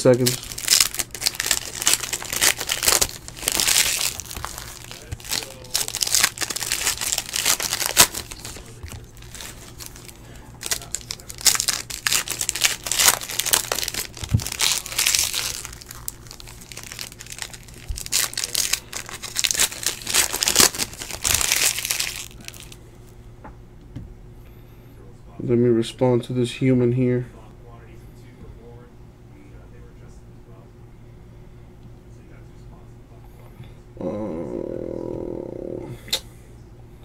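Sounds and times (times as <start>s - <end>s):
foil wrappers crinkling and tearing: 0.0s - 22.8s.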